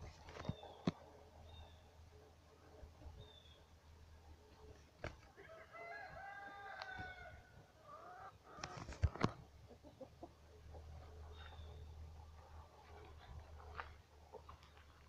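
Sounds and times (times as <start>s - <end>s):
chicken crowing call: 5.4s - 8.1s.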